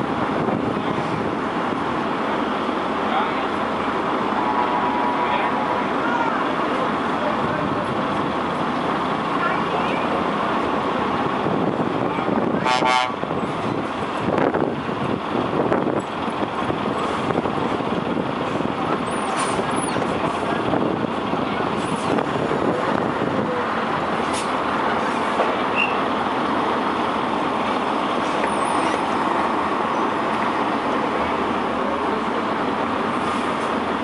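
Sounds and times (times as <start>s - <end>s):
road noise: 0.0s - 34.0s
truck engine running: 0.0s - 34.0s.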